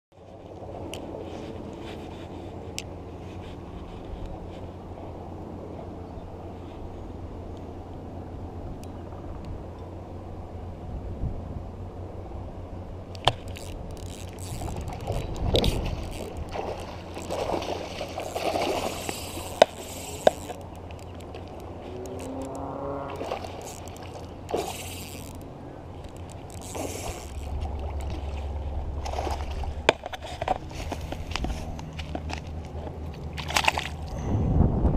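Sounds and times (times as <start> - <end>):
wind on microphone: 10.8 - 11.9, 13.4 - 25.3, 34.0 - 34.9
fishing reel clicks and scrapes: 13.1 - 32.5.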